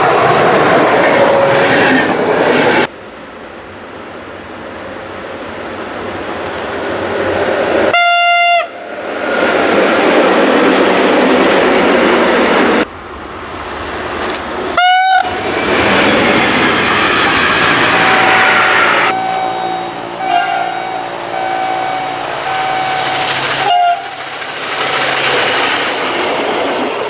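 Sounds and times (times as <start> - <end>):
train rail and wagon noise: 0.0 - 27.0
locomotive horn blasts: 7.9 - 8.8, 14.8 - 15.3, 17.8 - 24.2.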